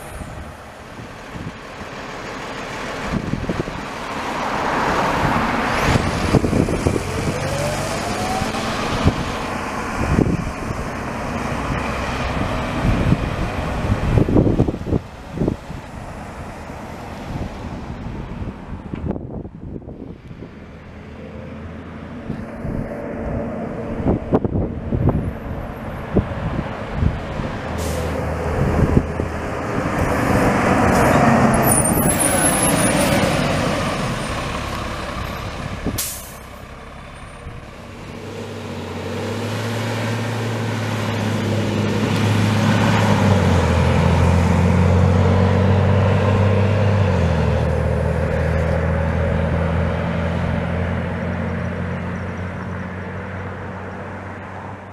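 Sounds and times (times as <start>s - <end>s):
bus engine and road noise: 0.0s - 54.9s
air brake hiss: 27.8s - 28.2s, 36.0s - 36.5s.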